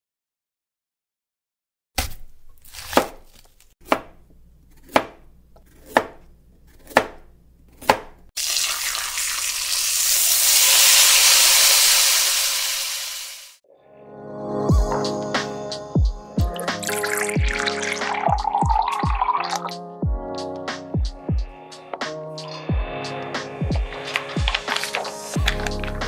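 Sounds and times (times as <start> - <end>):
knife chopping on cutting board: 2.0 - 8.3
food sizzling in hot pan: 8.4 - 13.6.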